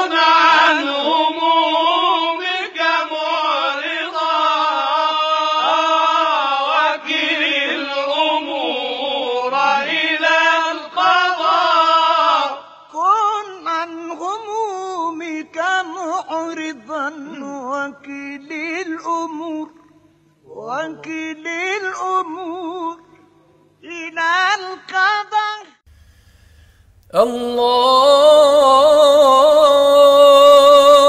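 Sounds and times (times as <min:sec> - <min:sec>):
solo voice chanting: 0:27.0 - 0:31.0.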